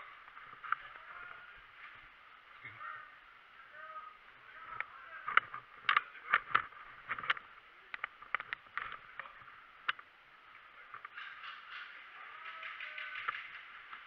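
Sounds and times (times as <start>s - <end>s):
sharp clicks and knocks: 4.8s - 10.1s, 10.9s - 14.0s.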